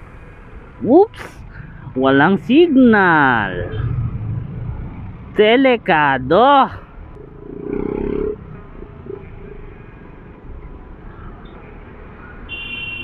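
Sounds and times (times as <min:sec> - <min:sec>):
scooter engine rumbling: 0:07.1 - 0:10.1.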